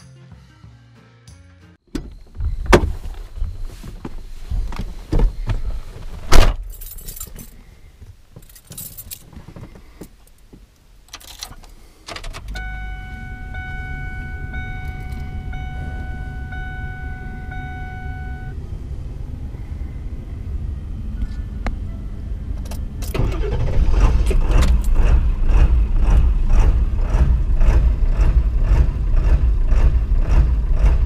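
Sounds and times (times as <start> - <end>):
keys jangling: 6.6 - 7.6, 8.4 - 9.3
dashboard warning chime: 12.5 - 18.6
diesel engine idling: 12.6 - 31.0.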